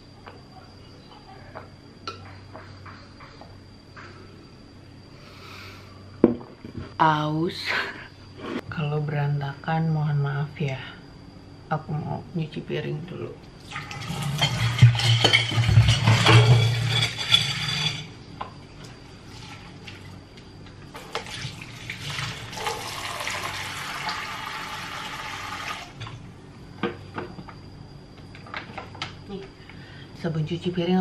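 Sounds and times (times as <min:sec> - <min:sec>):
dishes clinking: 0:14.0 - 0:18.1.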